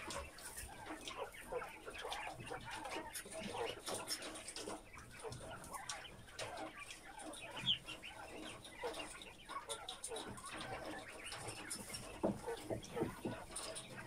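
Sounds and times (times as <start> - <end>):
quail chirping and clucking: 0.0 - 14.0.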